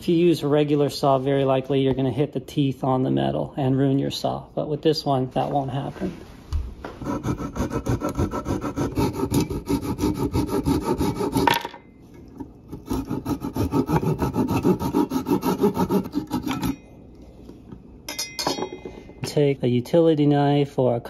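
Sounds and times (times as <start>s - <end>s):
pull saw cutting wood: 7.0s - 11.6s, 12.7s - 16.8s.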